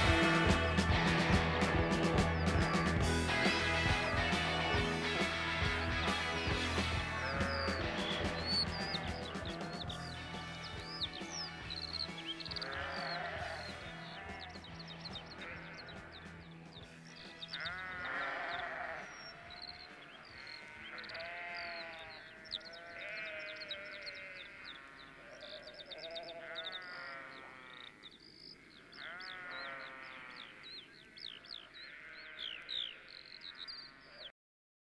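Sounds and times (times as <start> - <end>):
rock band music: 0.0 - 18.4
sheep bleating: 0.0 - 28.0, 28.6 - 31.0, 31.7 - 34.3
birds chirping: 0.0 - 34.3.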